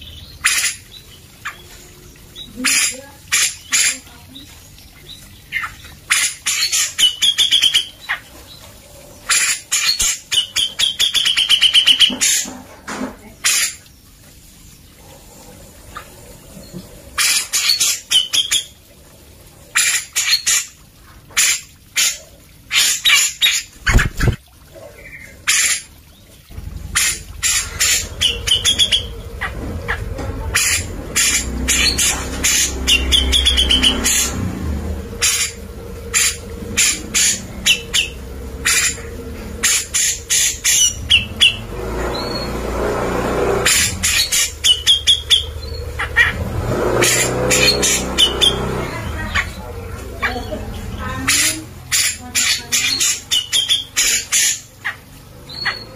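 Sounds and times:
low rumble: 26.5s - 51.3s
bird calling harsh notes: 26.6s - 42.6s, 43.6s - 55.9s.

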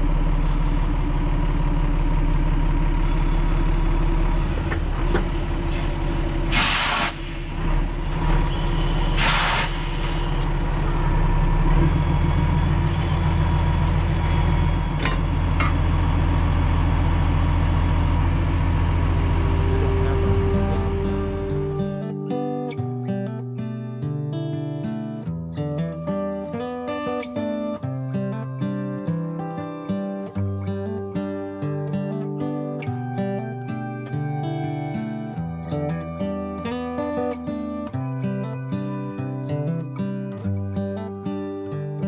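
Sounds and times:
diesel engine running: 0.0s - 22.5s
air hissing bursts: 6.5s - 7.6s, 8.4s - 10.4s.

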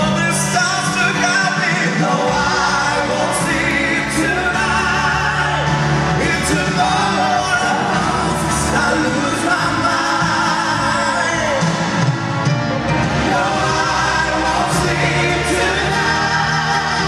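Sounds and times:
man singing into microphone: 0.0s - 11.9s
pop backing track: 0.0s - 17.0s.

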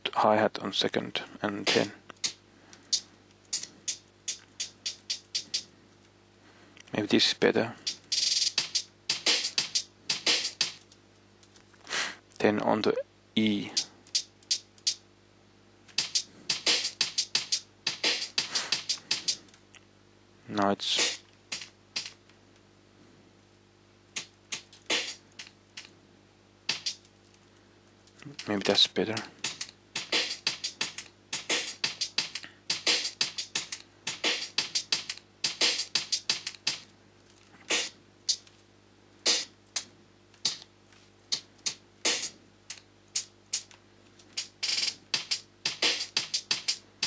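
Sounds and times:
drum machine hi-hat and percussion: 1.6s - 5.7s, 7.8s - 10.9s, 13.4s - 15.0s, 15.9s - 19.4s, 20.9s - 22.2s, 24.1s - 25.9s, 26.7s - 27.1s, 28.2s - 36.9s, 37.6s - 38.5s, 39.2s - 47.0s
keyboard keys clicking: 39.7s - 40.7s.

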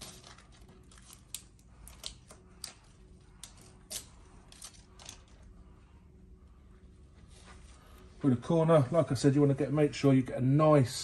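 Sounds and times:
tape liner peeling with crackles: 0.0s - 5.5s.

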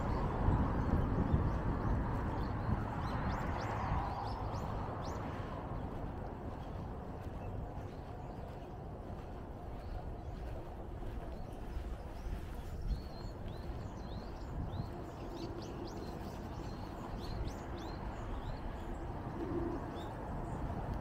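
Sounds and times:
passing vehicle rush: 0.0s - 7.2s
bird chirping: 0.0s - 20.7s.

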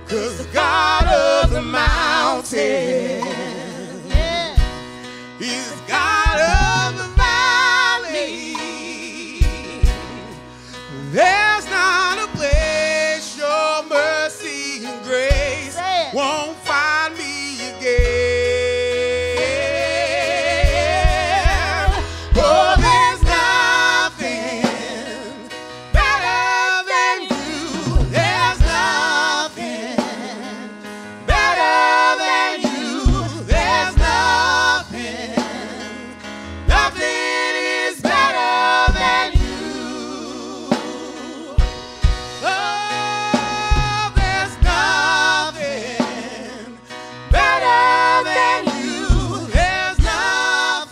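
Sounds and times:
keyboard: 0.0s - 50.9s
man and woman singing: 0.0s - 50.9s
kick drum hits: 1.0s - 2.1s, 21.1s - 23.4s, 38.9s - 39.6s.

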